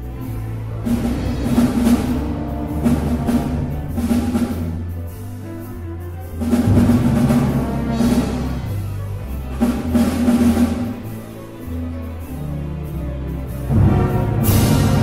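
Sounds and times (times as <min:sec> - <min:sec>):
orchestral music: 0:00.0 - 0:15.0
drum hits: 0:00.8 - 0:04.9.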